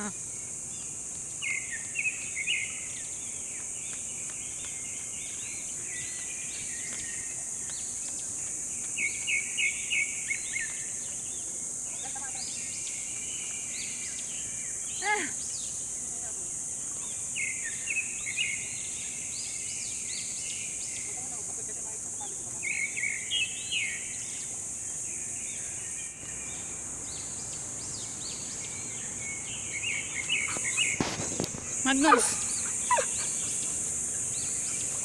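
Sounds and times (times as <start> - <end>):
high-pitched insect drone: 0.0 - 35.0
birds chirping: 22.2 - 35.0.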